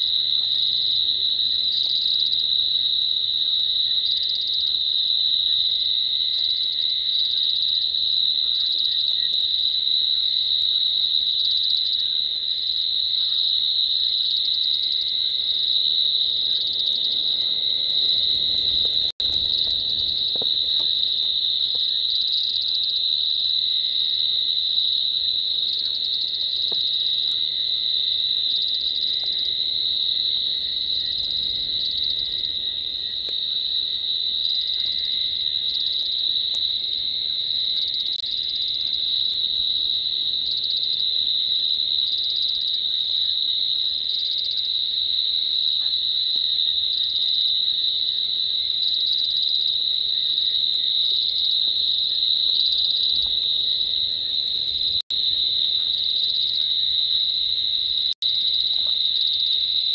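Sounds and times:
crickets trilling: 0.0s - 59.9s.

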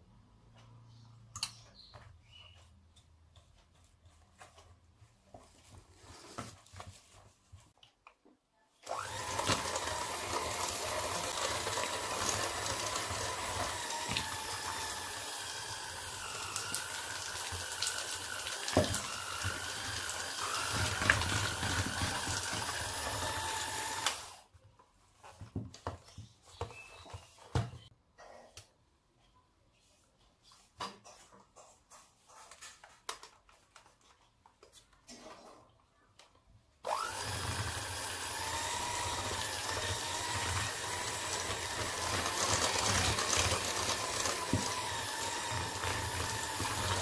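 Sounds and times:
electric hand mixer whirring: 8.8s - 24.5s, 36.8s - 47.0s.

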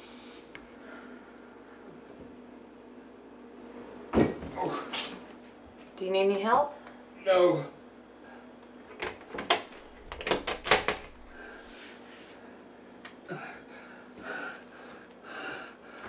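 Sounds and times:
rush of hiss: 0.0s - 0.5s
knocks and clatters: 9.0s - 11.4s.

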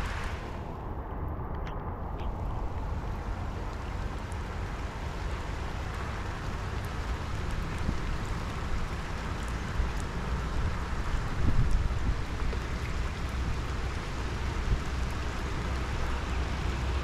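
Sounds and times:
rain over floodwater: 0.0s - 17.0s
wind buffeting microphone: 7.7s - 17.0s.

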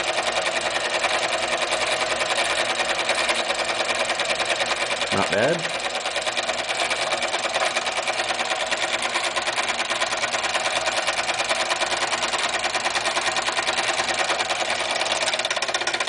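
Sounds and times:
model steam engine chuffing: 0.0s - 16.0s.

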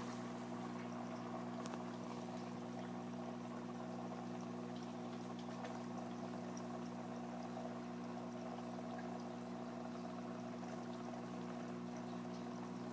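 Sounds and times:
steady low hum: 0.0s - 12.9s
water trickling and bubbling: 0.0s - 12.9s
faint small ticks: 1.6s - 1.9s.

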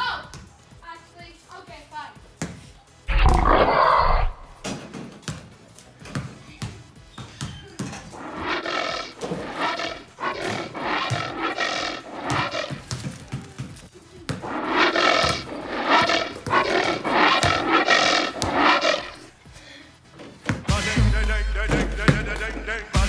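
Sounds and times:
monster roaring: 3.1s - 4.6s, 8.2s - 12.9s, 14.4s - 19.3s.

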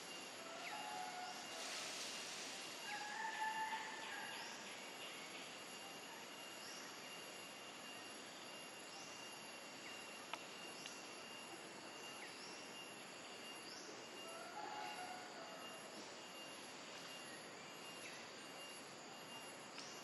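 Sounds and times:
insect hum: 0.0s - 20.0s.

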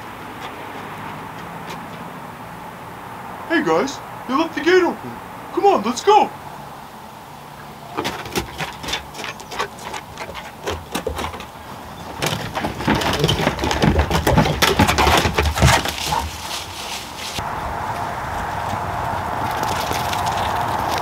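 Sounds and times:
dog claws clicking on wooden deck: 0.2s - 2.2s, 7.9s - 17.4s.

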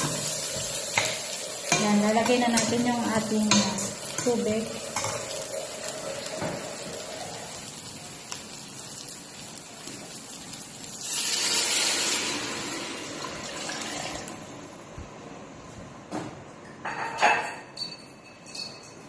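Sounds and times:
rice sizzling in a pot: 0.0s - 14.7s
water pouring into pot: 4.8s - 14.5s.

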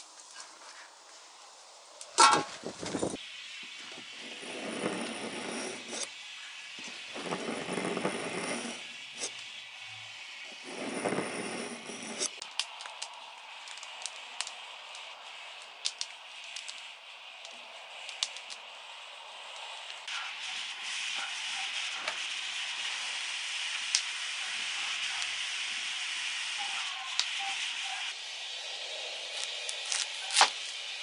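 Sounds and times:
knife scraping through sharpener: 4.2s - 6.1s, 10.6s - 12.4s.

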